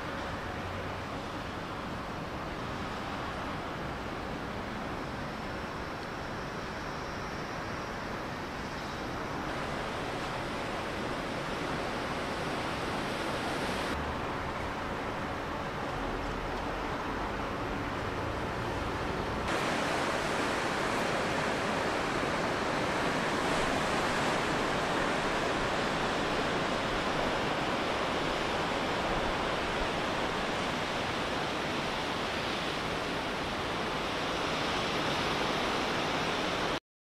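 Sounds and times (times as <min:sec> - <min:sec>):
wind: 0:00.0 - 0:36.8
surf breaking over rocks: 0:19.5 - 0:36.8.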